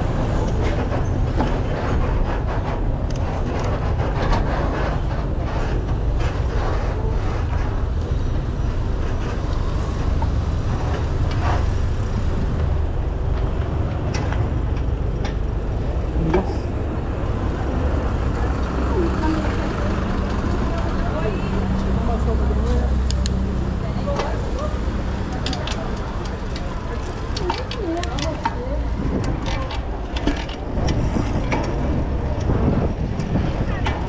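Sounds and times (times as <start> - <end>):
bus engine: 0.0 - 34.0
wind and road rumble: 0.0 - 34.0
bike clicks and knocks: 12.5 - 16.5, 24.1 - 34.0.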